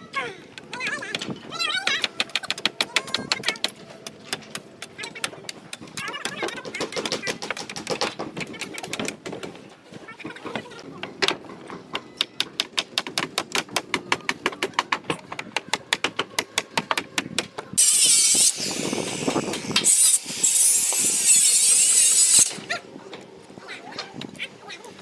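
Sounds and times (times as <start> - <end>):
angle grinder cutting: 17.8 - 22.7.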